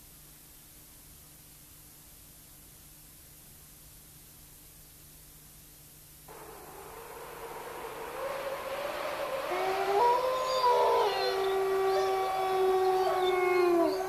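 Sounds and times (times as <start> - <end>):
hiss: 6.3 - 13.2
wolves howling: 6.3 - 14.0.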